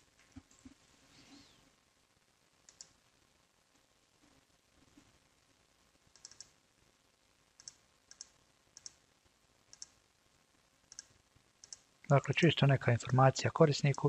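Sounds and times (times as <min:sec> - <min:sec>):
faint computer mouse clicks: 0:02.7 - 0:03.0, 0:06.1 - 0:06.6, 0:07.6 - 0:09.0, 0:09.7 - 0:10.0, 0:10.9 - 0:11.8.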